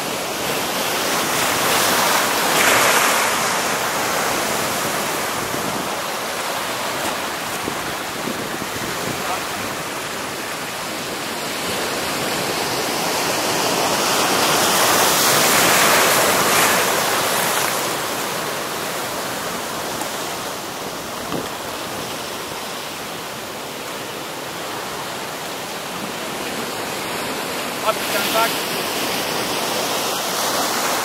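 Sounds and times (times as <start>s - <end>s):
surf breaking over rocks: 0.5s - 10.8s.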